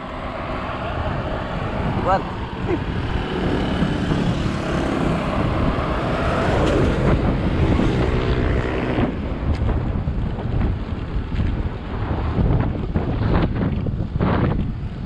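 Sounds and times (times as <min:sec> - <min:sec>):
motorcycle engine passing: 0:00.0 - 0:09.4
wind rushing over microphone: 0:00.0 - 0:15.0.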